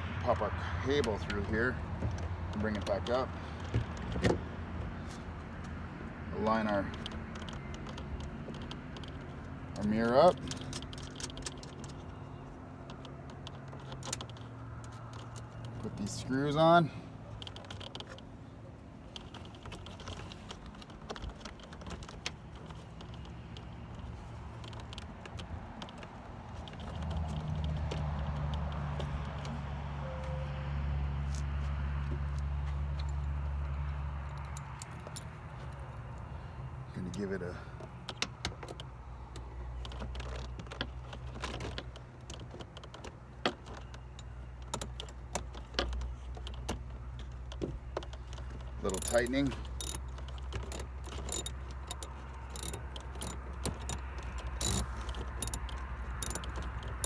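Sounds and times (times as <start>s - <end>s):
small hardware clicks and taps: 38.0s - 57.0s
hand tool metallic clicks: 48.9s - 57.0s.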